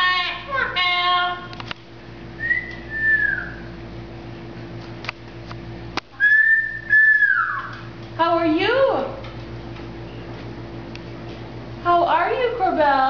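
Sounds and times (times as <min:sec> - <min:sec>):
parrot whistling: 0:02.4 - 0:03.7, 0:06.2 - 0:07.9.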